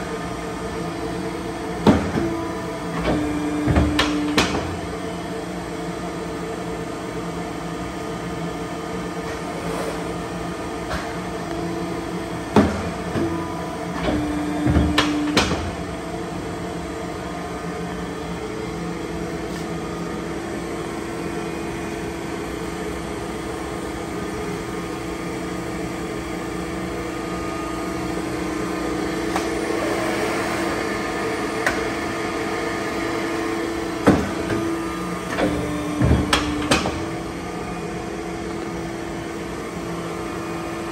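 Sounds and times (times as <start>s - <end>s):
hydraulic pump motor hum: 0.0s - 40.9s
machine knocks and clunks: 1.8s - 4.8s, 12.5s - 15.8s, 34.0s - 34.7s, 35.3s - 37.2s.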